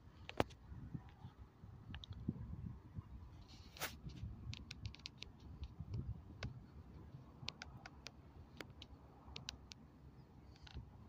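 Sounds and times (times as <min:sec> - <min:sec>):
faint ticking clicks: 0:07.4 - 0:09.8.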